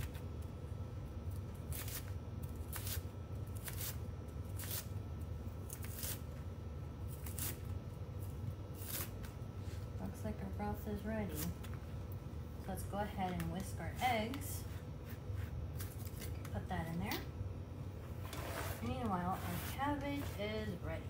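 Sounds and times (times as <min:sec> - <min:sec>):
knife slicing cabbage: 0:01.6 - 0:04.9, 0:05.7 - 0:06.2, 0:07.1 - 0:07.7, 0:08.7 - 0:09.3.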